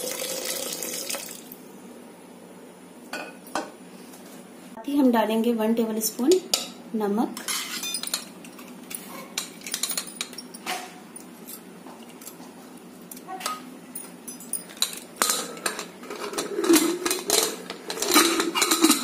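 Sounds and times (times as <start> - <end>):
metal lid clanking: 14.8 - 19.0
spoon scraping inside metal pot: 15.4 - 19.0.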